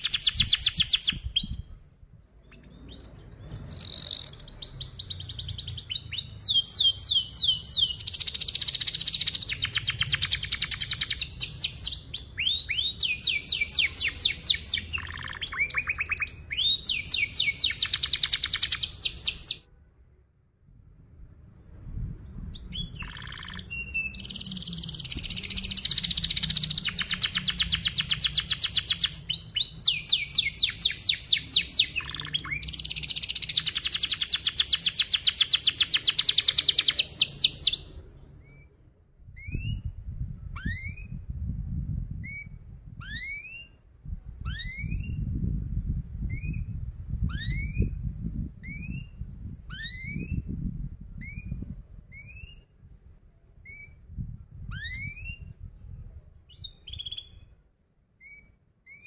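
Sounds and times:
canary singing trills: 0:00.0 - 0:19.6, 0:22.5 - 0:38.7, 0:54.7 - 0:55.6, 0:56.5 - 0:57.6.

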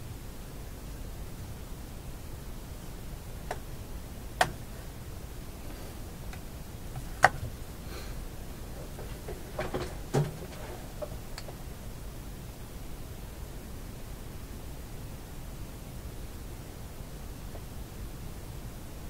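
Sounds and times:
steady hiss: 0:00.0 - 0:19.0
sharp clicks of handling wires: 0:05.7 - 0:07.6, 0:08.6 - 0:11.6.

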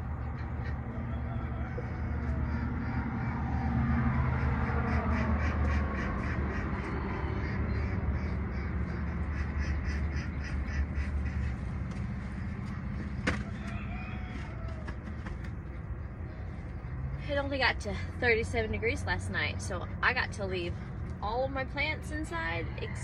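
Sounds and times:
birds calling: 0:00.0 - 0:17.2
steady low rumble: 0:00.0 - 0:23.0.

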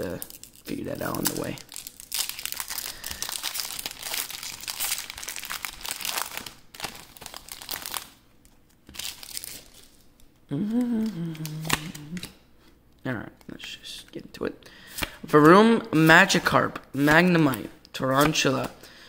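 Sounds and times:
foil wrapper crinkling: 0:00.0 - 0:10.3
person's voice: 0:10.5 - 0:12.3.

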